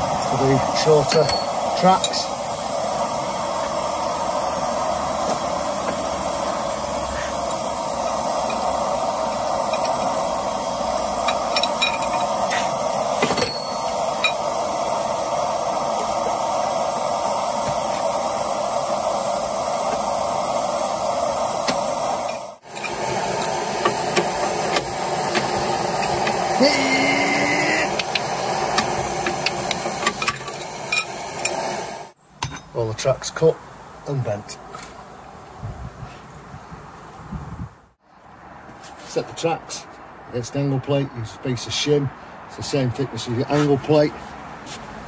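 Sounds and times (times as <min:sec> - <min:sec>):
gas forge burner running: 0:00.0 - 0:32.2
tongs clinking on steel: 0:11.2 - 0:12.4.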